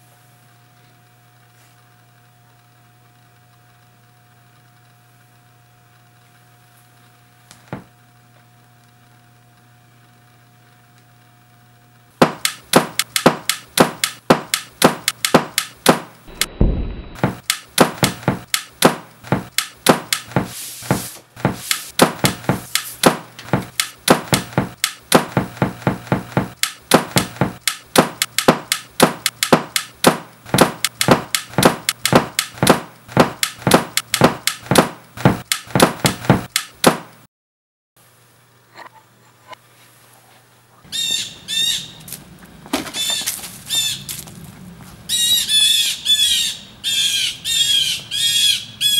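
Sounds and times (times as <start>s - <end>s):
sharp knocks and claps: 12.2s - 16.2s, 17.2s - 37.2s.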